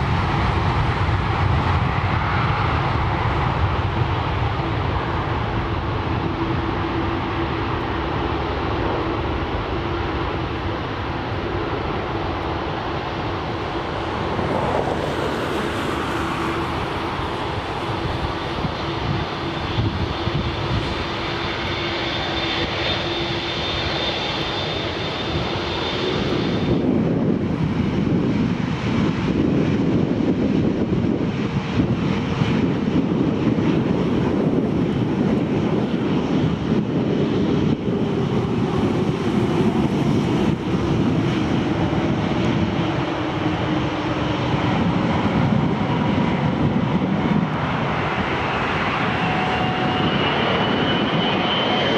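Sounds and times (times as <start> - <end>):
jet engines at takeoff: 0.0 - 51.9
loud steady low rumble: 24.9 - 51.7.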